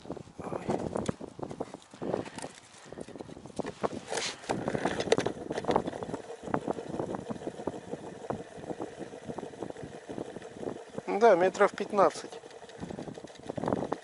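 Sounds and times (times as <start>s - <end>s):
hands clicking plastic line spool: 4.1s - 7.4s, 11.6s - 14.0s
faint steady hum: 4.4s - 14.0s.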